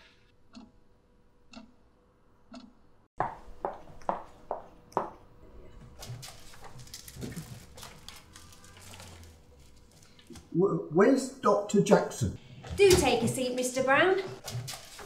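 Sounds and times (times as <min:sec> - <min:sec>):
wall clock ticking: 0:00.5 - 0:00.8, 0:01.5 - 0:01.8.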